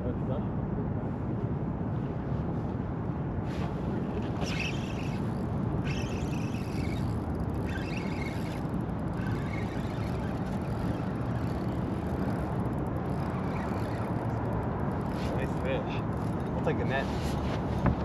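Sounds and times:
wind and river rumble: 0:00.0 - 0:18.0
fishing reel whirring: 0:04.0 - 0:17.4.

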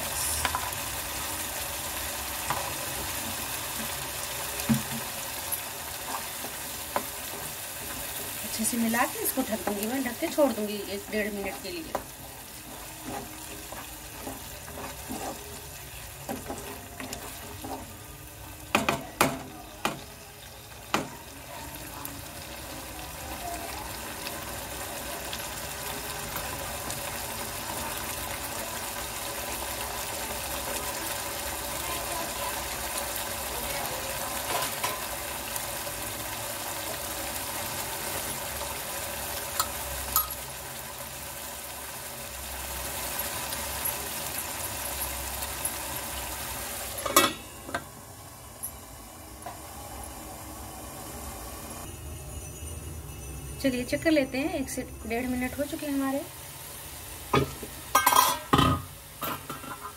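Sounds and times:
paste sizzling and bubbling: 0:00.0 - 0:48.4
spatula scraping a pan: 0:09.2 - 0:18.1
knocks on a pan: 0:18.7 - 0:20.0.

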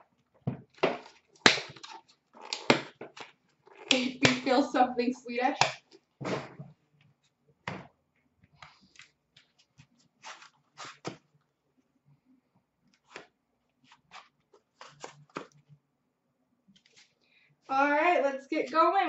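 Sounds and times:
hands handling card packaging: 0:08.7 - 0:11.3, 0:13.0 - 0:15.6.

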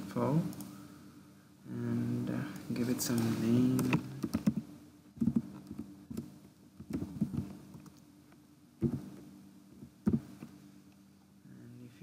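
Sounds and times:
faint steady hum: 0:00.0 - 0:12.0
keyboard typing: 0:03.1 - 0:08.0.

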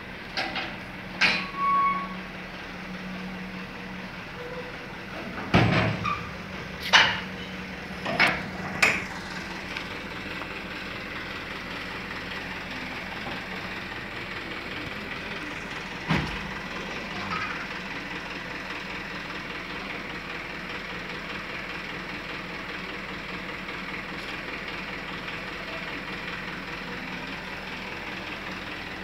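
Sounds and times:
metal tailgate knocks and clanks: 0:05.4 - 0:06.3.

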